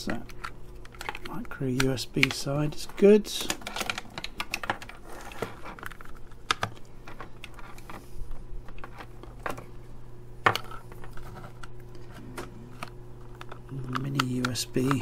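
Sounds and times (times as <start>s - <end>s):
plastic clicks and rattles: 0.0s - 2.5s, 3.4s - 7.9s.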